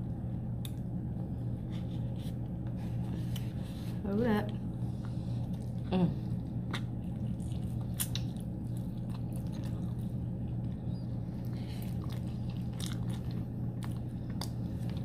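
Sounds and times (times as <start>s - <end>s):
steady low hum: 0.0s - 15.0s
person chewing food: 4.9s - 15.0s.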